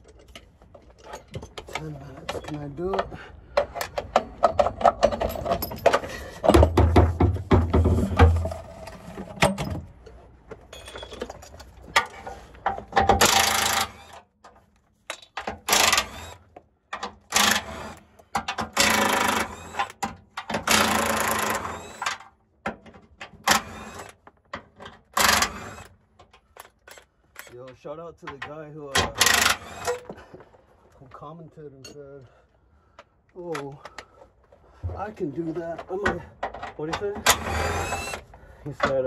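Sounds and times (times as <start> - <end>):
impact wrench bursts: 13.1 - 14.2, 15.6 - 16.5, 17.3 - 22.2, 25.2 - 25.9, 29.0 - 30.1, 37.2 - 38.3.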